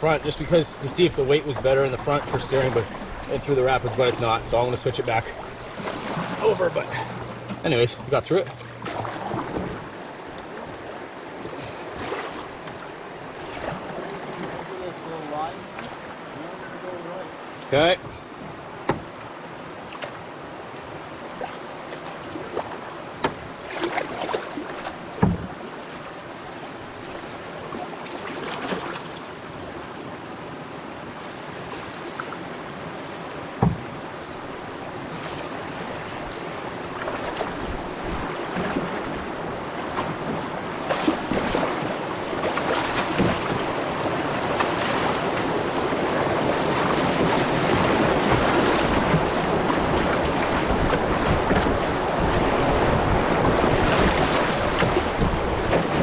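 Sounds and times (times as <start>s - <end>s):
paddle knocking canoe hull: 0.0s - 14.7s, 17.7s - 19.4s, 21.4s - 26.0s, 33.3s - 56.0s
river water rushing: 0.0s - 56.0s.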